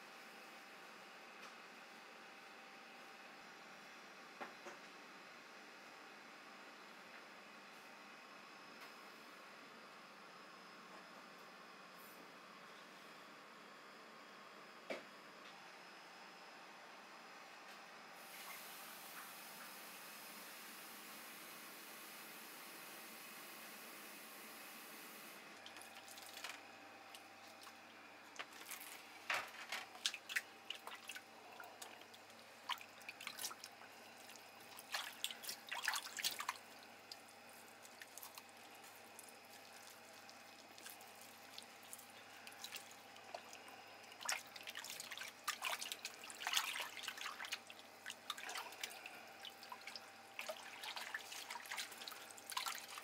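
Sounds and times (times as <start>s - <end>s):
hands splashing in water: 32.6s - 37.2s, 44.2s - 53.0s.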